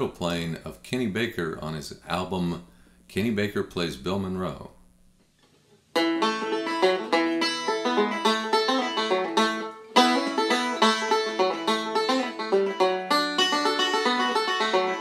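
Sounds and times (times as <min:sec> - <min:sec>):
banjo picking: 0:05.9 - 0:15.0.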